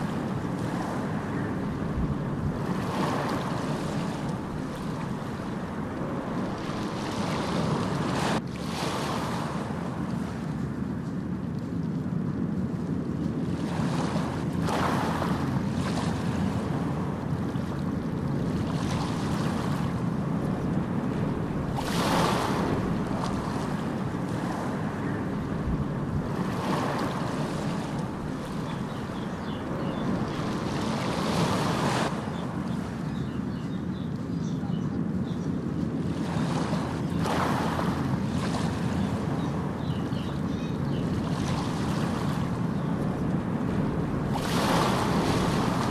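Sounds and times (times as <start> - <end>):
steady rushing noise: 13.7 - 33.2, 39.0 - 45.9.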